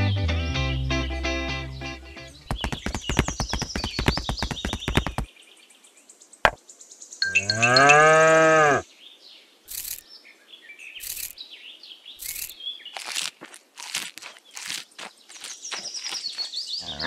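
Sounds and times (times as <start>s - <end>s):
bird chirps: 2.3s - 5.8s, 6.5s - 8.0s, 9.1s - 13.3s, 13.9s - 17.0s
light taps and clicks: 2.5s - 5.3s
cow mooing: 7.3s - 8.8s.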